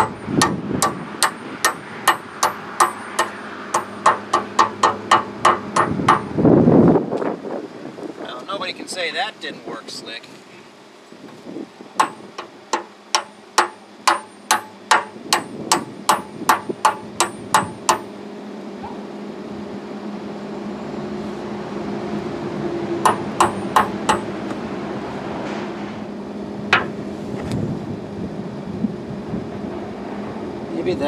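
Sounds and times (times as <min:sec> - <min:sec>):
hammer striking steel: 0:00.0 - 0:06.3, 0:12.0 - 0:18.1, 0:23.0 - 0:24.3, 0:26.7 - 0:27.0
steady low hum: 0:00.0 - 0:31.0.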